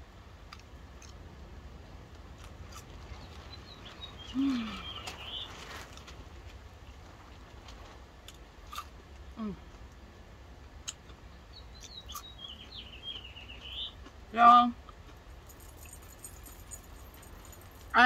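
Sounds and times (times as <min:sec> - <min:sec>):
faint chirping: 0:03.2 - 0:05.6.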